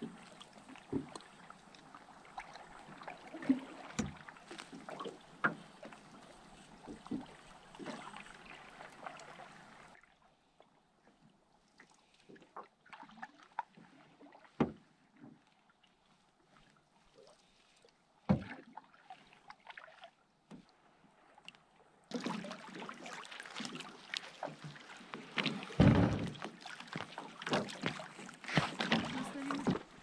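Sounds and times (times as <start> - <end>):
knocks and clunks on boat: 0.0 - 1.3, 2.8 - 8.6, 14.5 - 15.5, 18.2 - 18.7, 23.6 - 30.0
paddle splashes: 0.0 - 30.0
water lapping against boat hull: 0.0 - 30.0.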